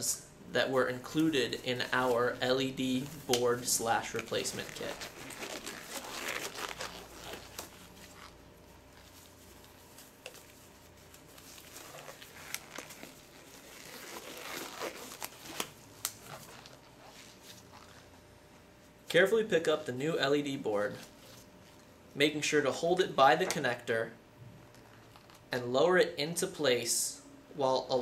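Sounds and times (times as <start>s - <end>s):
gloves rustling and crinkling: 0.6s - 19.0s, 20.8s - 22.0s, 24.7s - 25.5s.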